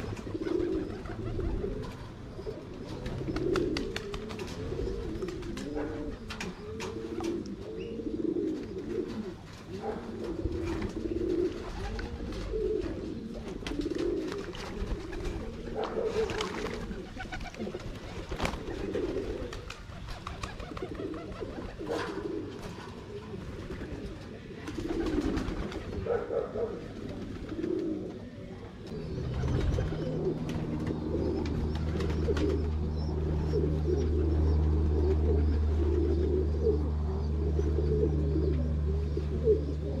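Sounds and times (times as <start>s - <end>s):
pigeons cooing: 0.0s - 40.0s
wing flaps: 2.8s - 7.4s, 13.5s - 22.9s, 24.7s - 26.1s, 29.2s - 32.9s.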